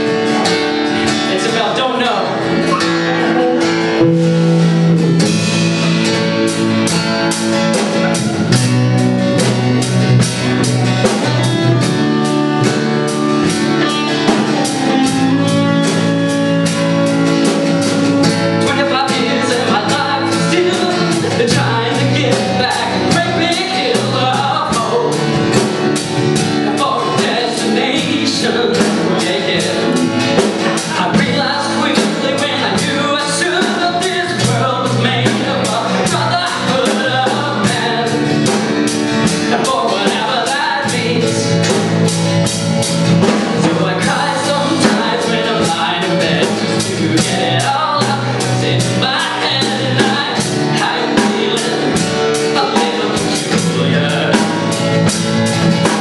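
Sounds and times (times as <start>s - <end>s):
drum kit steady beat: 0.0s - 56.0s
guitars playing: 0.0s - 56.0s
man singing into microphone: 1.0s - 3.4s, 18.3s - 25.6s, 26.4s - 41.9s, 43.2s - 55.1s.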